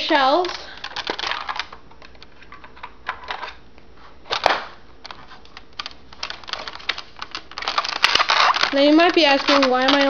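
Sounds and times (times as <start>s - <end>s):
toy blaster plastic clicks and rattles: 0.4s - 2.3s, 5.8s - 10.0s
loud plastic snap: 4.3s - 4.8s.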